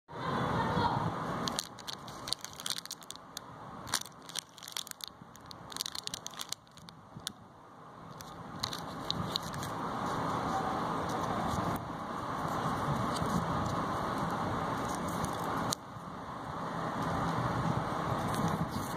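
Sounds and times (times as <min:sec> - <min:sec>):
plastic wrappers crinkling: 0:01.4 - 0:07.3, 0:08.2 - 0:09.7.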